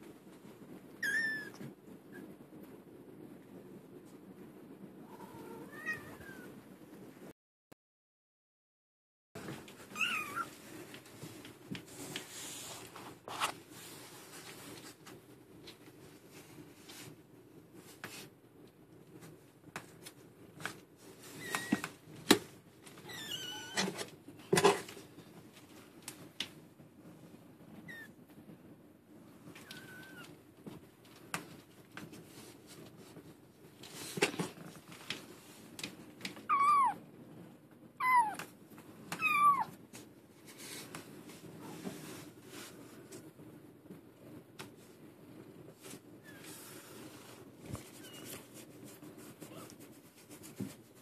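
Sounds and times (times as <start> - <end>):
faint rustling: 9.4 - 37.8, 38.4 - 51.0
kittens mewing: 39.2 - 39.8.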